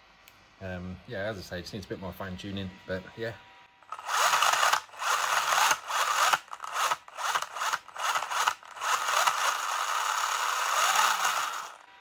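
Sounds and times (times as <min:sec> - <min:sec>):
electric motor gritty whirr: 0:02.9 - 0:12.0.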